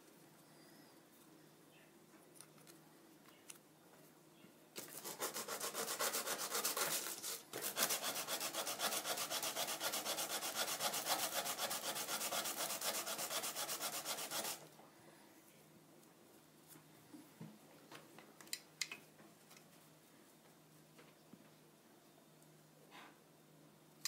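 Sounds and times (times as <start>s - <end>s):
sandpaper rubbing on wood: 4.8s - 14.6s.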